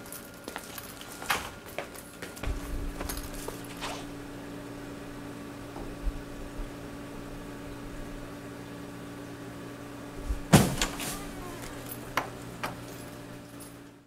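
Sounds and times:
low room hum: 0.0 - 14.0
wooden door banging shut: 10.4 - 11.0.

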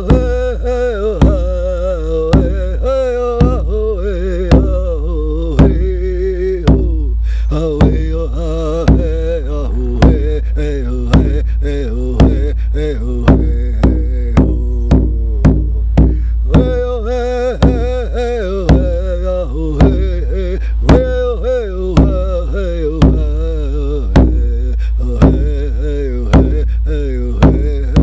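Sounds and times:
man singing wordless chant: 0.0 - 28.0
hand drum beating: 0.1 - 0.5, 1.2 - 1.6, 2.3 - 2.8, 3.4 - 3.8, 4.5 - 4.9, 5.6 - 6.0, 6.7 - 7.0, 7.8 - 8.2, 8.9 - 9.2, 11.1 - 11.5, 12.2 - 12.5, 13.3 - 16.9, 17.6 - 19.1, 19.8 - 20.2, 20.9 - 21.2, 22.0 - 22.3, 23.0 - 23.5, 24.2 - 24.6, 25.2 - 25.6, 26.3 - 26.7, 27.4 - 28.0.

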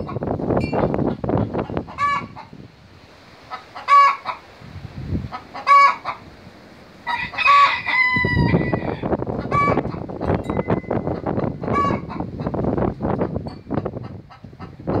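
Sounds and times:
hen cackling: 1.0 - 2.6, 3.4 - 4.5, 5.2 - 6.4, 7.0 - 10.2, 11.1 - 13.4, 14.0 - 15.0.

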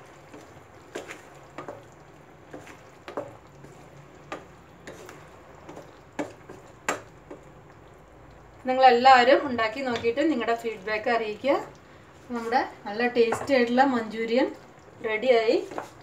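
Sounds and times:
faint simmer: 0.0 - 16.0
spatula knocking and scraping pan: 0.2 - 7.5, 12.4 - 13.8, 15.5 - 16.0.

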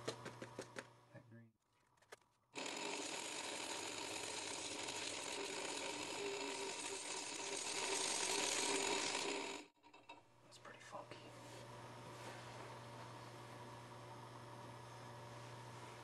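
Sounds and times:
lathe motor hum: 2.6 - 10.2, 11.6 - 16.0.

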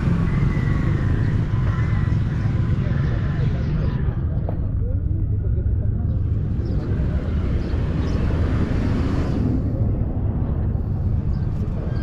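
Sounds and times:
steady low rumble: 3.6 - 12.0
vehicle passing close by: 6.4 - 12.0.

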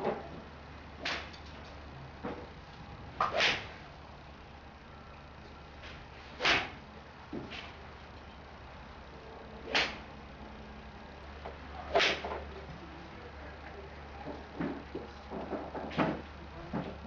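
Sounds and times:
golf club swishing through air: 3.2 - 3.8, 6.2 - 6.8, 11.9 - 12.3.

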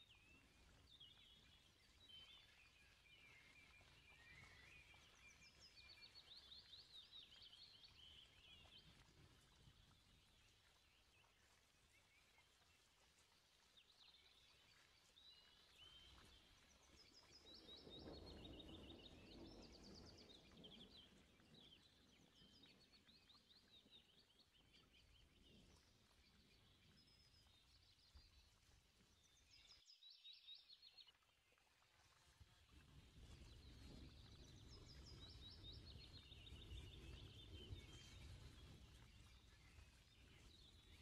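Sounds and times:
birds chirping and twittering: 0.1 - 13.0, 33.2 - 41.0.

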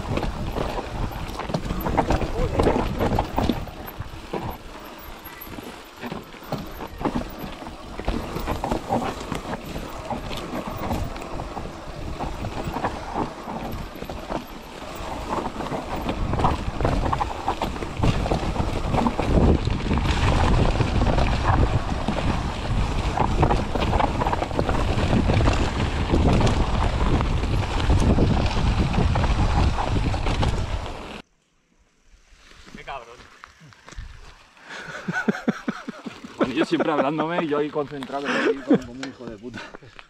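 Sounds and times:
wind on microphone: 0.0 - 5.8, 6.5 - 31.2
bike clicks and rattles: 0.0 - 31.2, 33.4 - 40.0
tyres rolling over rocks: 0.0 - 31.2, 32.4 - 40.0.

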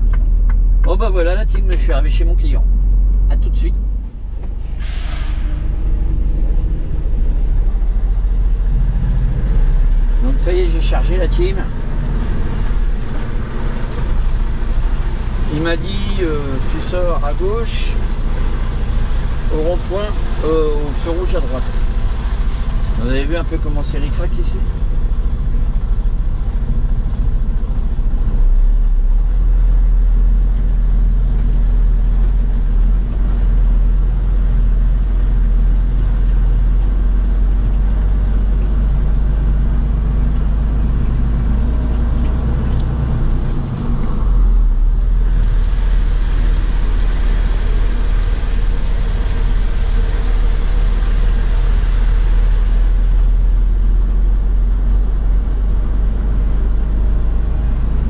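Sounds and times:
diesel engine low rumble: 0.0 - 58.0
hiss: 4.8 - 6.0, 45.0 - 53.9.

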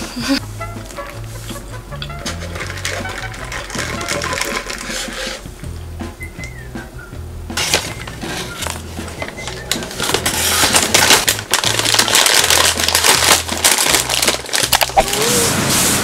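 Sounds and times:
background music with bass line: 0.0 - 16.0
paper bag crinkling: 2.3 - 5.4, 7.6 - 15.6.

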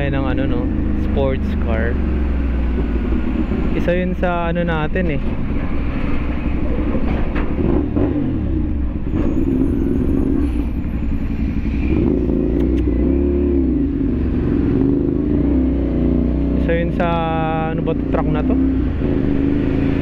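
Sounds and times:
truck diesel engine: 0.0 - 20.0
motorcycle engine revving: 5.9 - 20.0.

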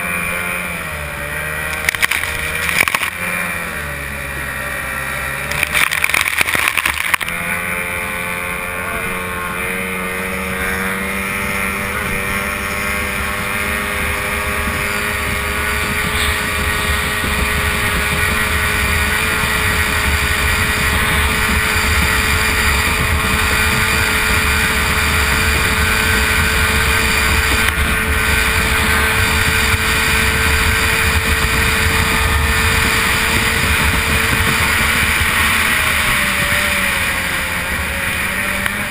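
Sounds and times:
racing outboard motor at full throttle: 0.0 - 38.9
rushing wind: 0.0 - 38.9
water spray splashing: 5.4 - 7.7, 12.4 - 38.9.

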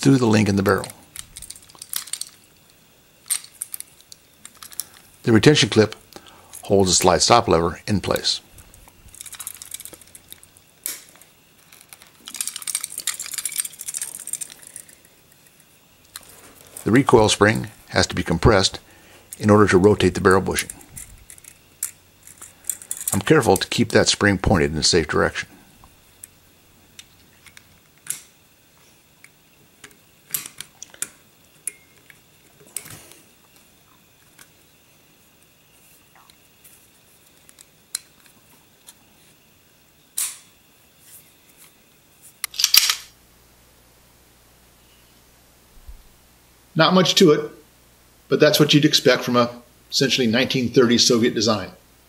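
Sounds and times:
metal pistol parts clicking: 0.7 - 5.0, 9.1 - 16.3, 20.5 - 23.7, 27.0 - 28.3, 42.4 - 43.1.

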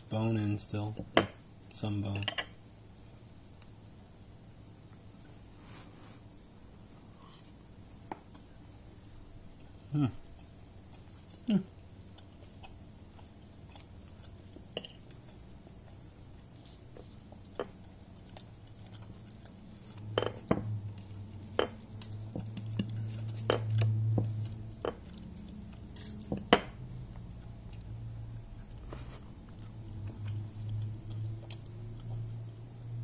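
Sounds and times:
chewing: 6.8 - 33.0.

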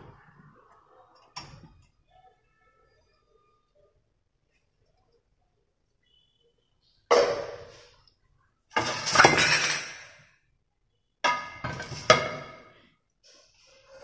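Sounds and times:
cookware clinking and clattering: 8.7 - 10.3, 11.2 - 12.9.

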